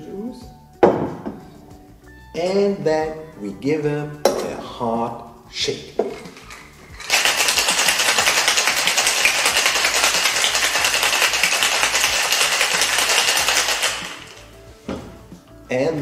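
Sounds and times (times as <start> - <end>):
ice rattling in cocktail shaker: 5.9 - 14.6.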